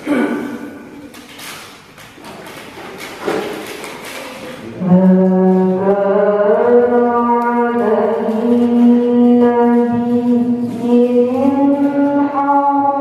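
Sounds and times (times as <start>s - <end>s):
woman reciting melodically: 4.0s - 13.0s.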